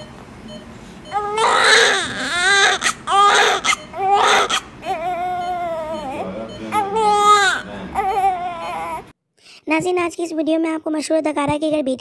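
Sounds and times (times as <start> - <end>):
newborn baby crying: 1.1 - 9.2.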